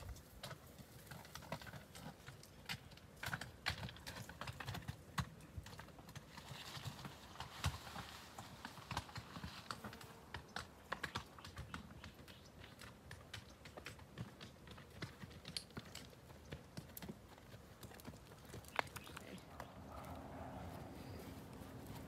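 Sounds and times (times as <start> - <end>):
hooves knocking on stones: 0.0 - 20.0
dry brush and twigs crackling: 17.8 - 22.0.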